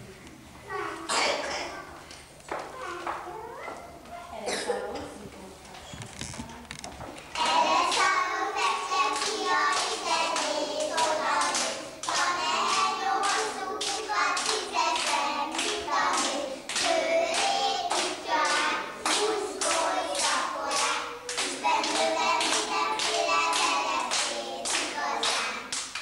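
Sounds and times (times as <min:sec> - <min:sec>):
children singing together: 0:07.3 - 0:26.0
hands clapping to a beat: 0:07.4 - 0:26.0.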